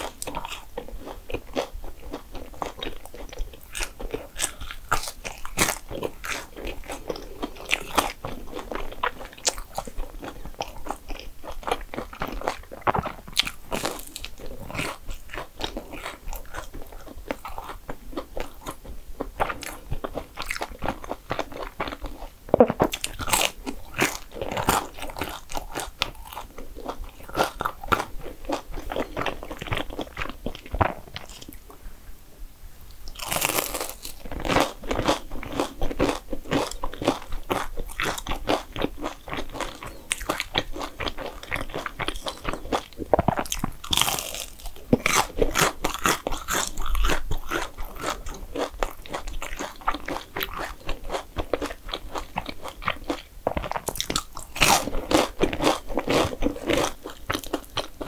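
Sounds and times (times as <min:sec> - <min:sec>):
person chewing crunchy food: 0:00.0 - 0:31.8, 0:33.0 - 0:58.0.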